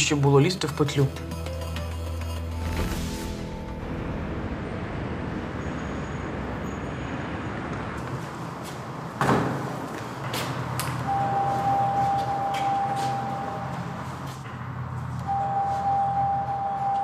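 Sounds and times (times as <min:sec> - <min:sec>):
road traffic noise: 0:01.2 - 0:17.0
steady tone: 0:02.4 - 0:07.6.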